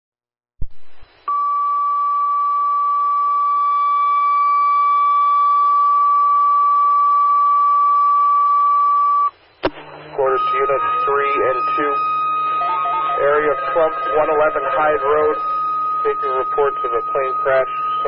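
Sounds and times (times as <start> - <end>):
radio hiss: 9.3 - 18.0
steady alert tone over radio: 9.8 - 18.0.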